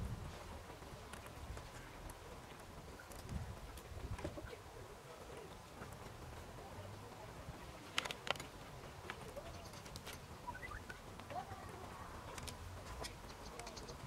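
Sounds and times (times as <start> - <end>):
faint bird calls: 9.2 - 11.8, 13.0 - 14.0.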